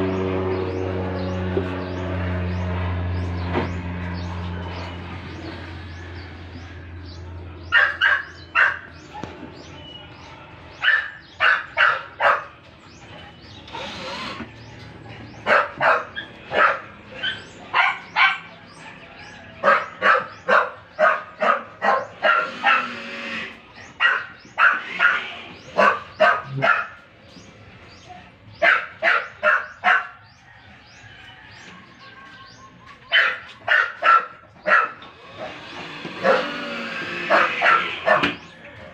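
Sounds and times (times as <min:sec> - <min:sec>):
dog barking: 0:07.7 - 0:09.4, 0:10.8 - 0:12.6, 0:15.4 - 0:18.6, 0:19.6 - 0:23.0, 0:24.0 - 0:27.0, 0:28.6 - 0:30.2, 0:33.1 - 0:35.5, 0:36.2 - 0:36.5, 0:37.2 - 0:38.5.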